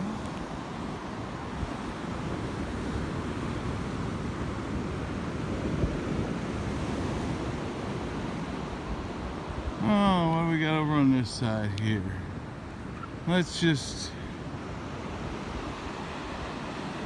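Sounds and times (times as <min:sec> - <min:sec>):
wind buffeting microphone: 0:00.0 - 0:10.5
ocean surf breaking: 0:00.0 - 0:17.0.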